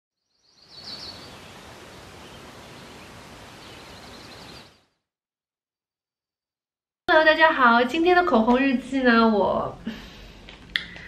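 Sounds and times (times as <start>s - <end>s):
high bird chirps: 0.2s - 4.9s
steady rustling hiss: 0.7s - 4.7s.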